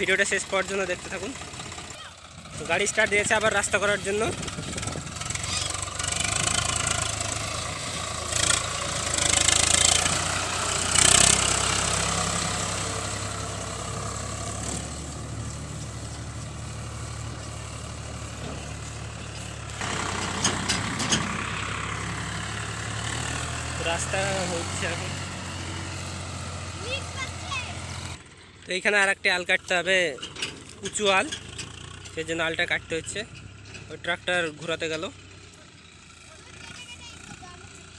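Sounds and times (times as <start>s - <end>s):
tractor diesel engine running: 0.0s - 37.9s.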